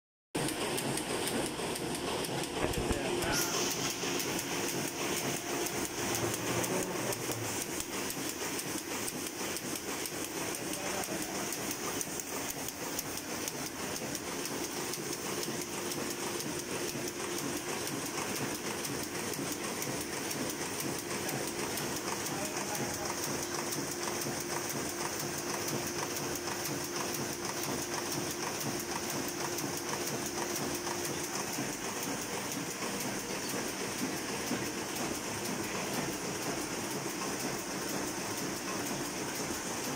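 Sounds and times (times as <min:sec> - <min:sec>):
printing press clatter: 0:00.4 - 0:39.9.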